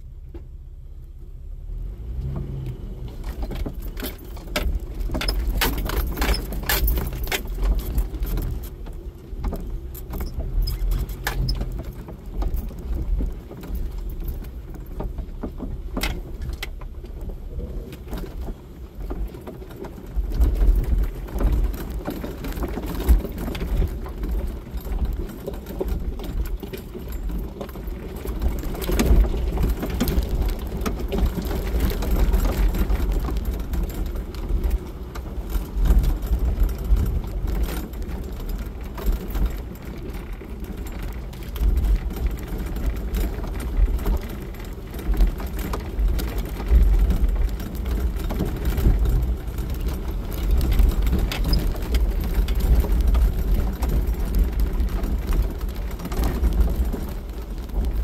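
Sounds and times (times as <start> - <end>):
engine and tyres rumbling: 0.0 - 58.0
knocks and rattles: 3.1 - 58.0.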